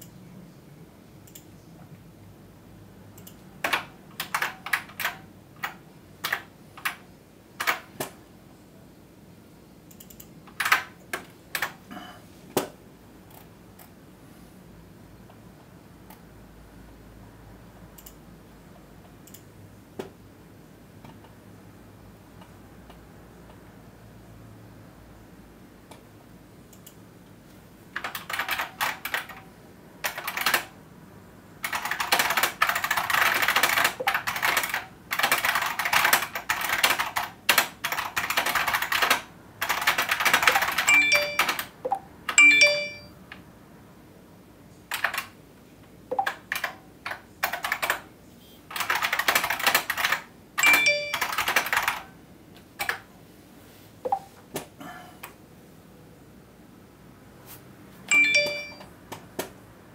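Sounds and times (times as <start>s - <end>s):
keyboard typing: 3.1s - 7.0s, 7.6s - 8.2s, 9.9s - 11.8s, 18.0s - 18.2s, 28.0s - 29.4s, 30.0s - 30.7s, 31.6s - 43.1s, 44.9s - 45.4s, 46.1s - 48.1s, 48.7s - 52.1s, 54.1s - 54.3s, 58.1s - 59.5s
phone notification chimes: 40.9s - 43.2s, 50.6s - 51.3s, 58.1s - 58.9s.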